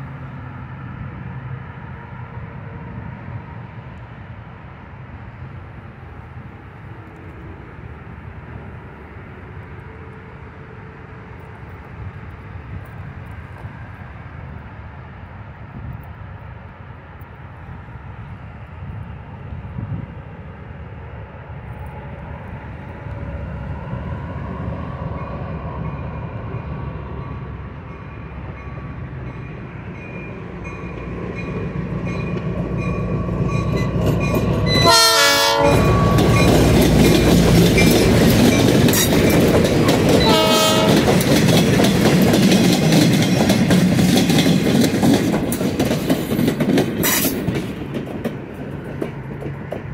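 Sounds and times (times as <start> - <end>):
diesel locomotive engine rumble: 0.0 - 49.9
train wheels on rails: 0.0 - 49.9
locomotive horn: 34.7 - 36.7, 40.1 - 41.2.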